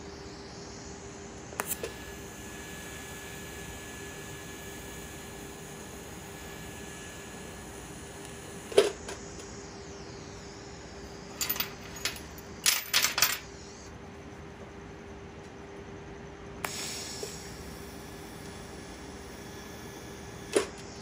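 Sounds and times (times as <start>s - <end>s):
welding arc hissing: 1.4s - 12.0s, 16.6s - 21.0s.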